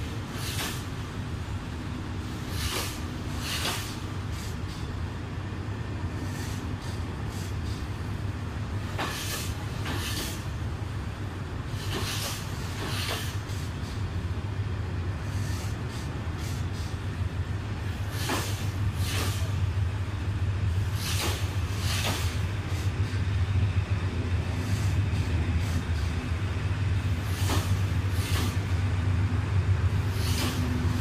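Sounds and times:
wheel clacks on rail joints: 0:00.0 - 0:01.0, 0:02.5 - 0:05.0, 0:08.8 - 0:10.5, 0:11.7 - 0:14.1, 0:18.0 - 0:19.6, 0:20.8 - 0:23.2, 0:26.9 - 0:28.8, 0:30.1 - 0:31.0
train rolling past rumbling: 0:00.0 - 0:31.0.

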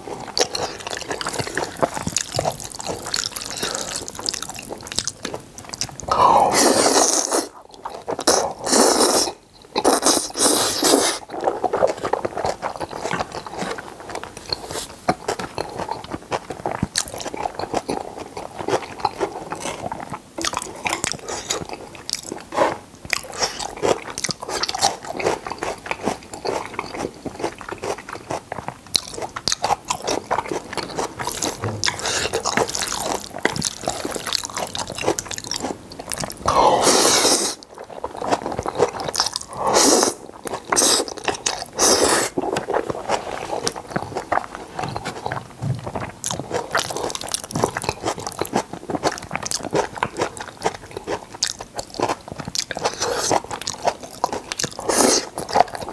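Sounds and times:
wet chewing and smacking: 0:00.0 - 0:06.1, 0:06.8 - 0:55.9
slurping noodles: 0:06.1 - 0:07.6, 0:08.2 - 0:13.8, 0:36.4 - 0:37.7, 0:38.3 - 0:45.3, 0:54.8 - 0:55.9.

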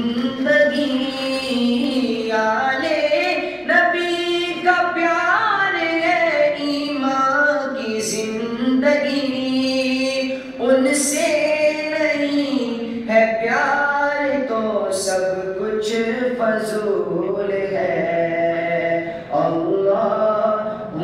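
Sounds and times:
man chanting unaccompanied: 0:07.6 - 0:21.0.

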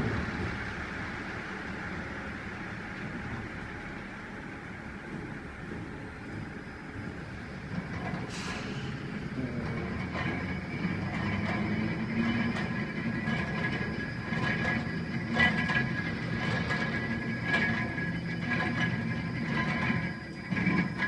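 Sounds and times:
turntable mechanical running noise: 0:00.0 - 0:08.3, 0:09.1 - 0:21.0
metal clanks: 0:05.1 - 0:21.0.

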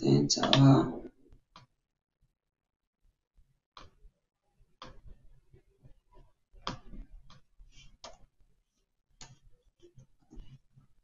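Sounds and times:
computer mouse clicks: 0:03.8 - 0:04.0, 0:08.0 - 0:08.3.

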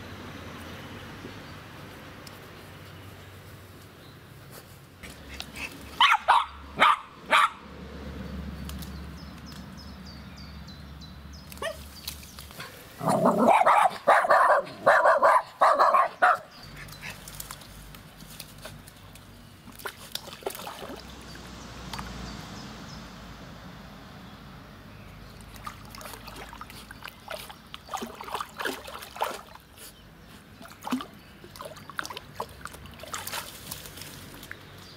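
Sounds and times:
dog barking: 0:06.0 - 0:07.6, 0:11.6 - 0:11.8, 0:13.0 - 0:16.5.

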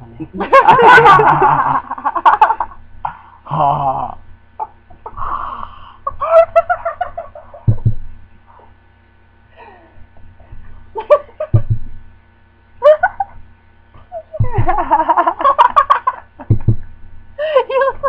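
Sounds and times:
laughter: 0:00.2 - 0:02.8, 0:06.1 - 0:07.7, 0:11.0 - 0:11.7, 0:12.8 - 0:13.4, 0:14.0 - 0:16.5, 0:17.4 - 0:18.0
low thumps: 0:07.6 - 0:08.3, 0:11.5 - 0:12.1, 0:14.4 - 0:15.0, 0:16.4 - 0:17.0
silly wavering voices: 0:14.0 - 0:14.8.

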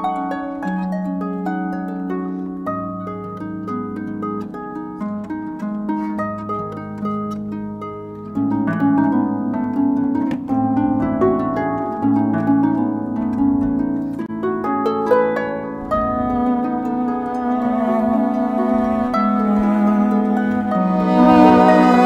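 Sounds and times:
harp plucked notes: 0:00.0 - 0:22.0
cello bowed low notes: 0:15.8 - 0:22.0.

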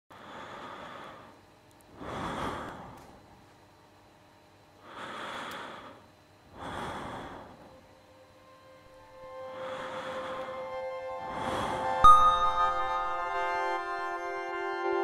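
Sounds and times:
person breathing: 0:00.1 - 0:03.2, 0:04.8 - 0:08.0, 0:09.1 - 0:14.0.

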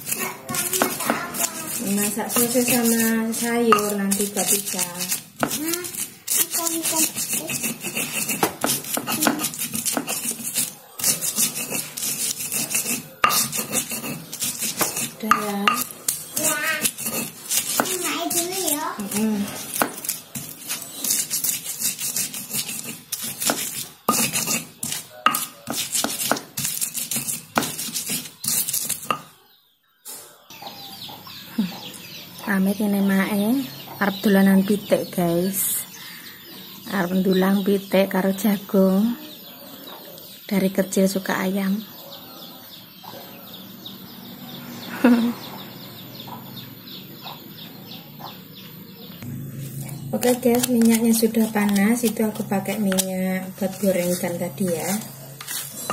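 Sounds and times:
stone pestle gritty scraping: 0:00.0 - 0:29.4, 0:49.2 - 0:55.9
chickens chirping: 0:10.2 - 0:25.7, 0:27.8 - 0:55.9.

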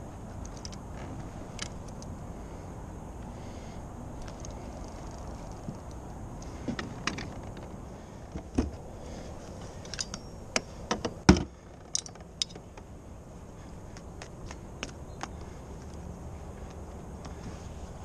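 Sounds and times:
fishing gear clicks and rattles: 0:00.4 - 0:02.2, 0:04.2 - 0:07.8, 0:09.5 - 0:12.9.

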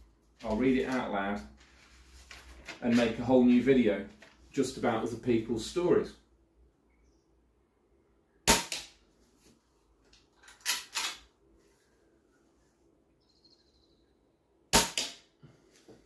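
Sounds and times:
air rifle shots: 0:08.4 - 0:09.0, 0:14.7 - 0:15.3.

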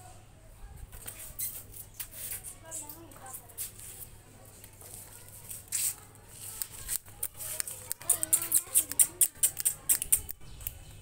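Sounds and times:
dog claws clicking on concrete: 0:05.5 - 0:10.8.

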